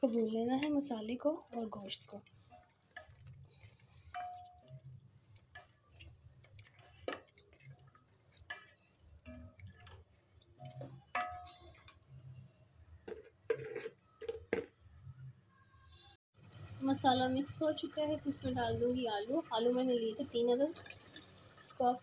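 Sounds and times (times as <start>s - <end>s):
spoon scraping and knocking pot: 2.4s - 12.0s, 13.0s - 14.7s.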